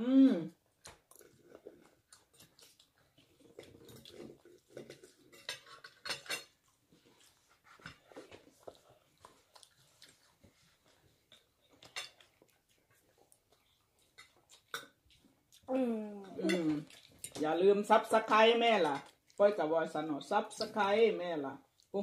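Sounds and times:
cutlery scraping on plates: 4.8 - 6.6.

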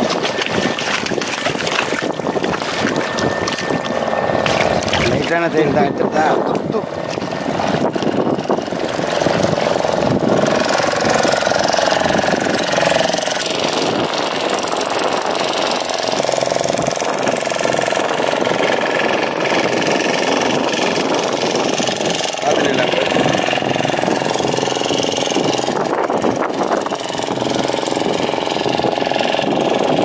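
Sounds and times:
engine running steadily: 0.0 - 30.0.

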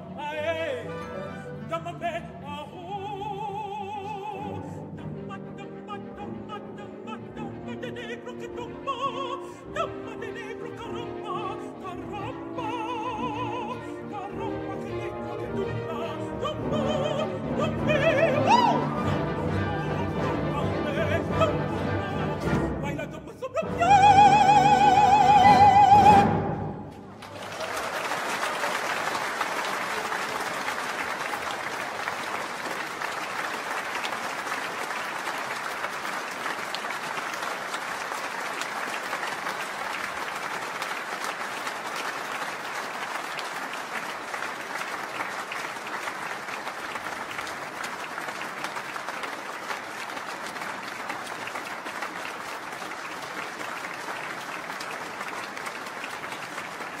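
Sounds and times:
audience applauding: 26.9 - 57.0.

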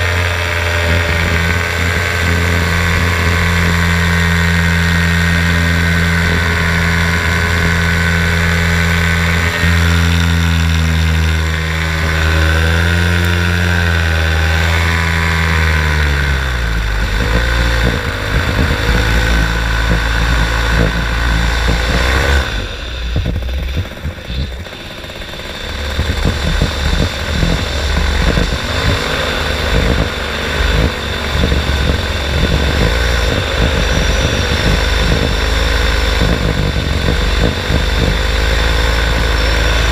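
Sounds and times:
paramotor engine running: 0.0 - 39.9
wind buffeting microphone: 16.3 - 39.9.

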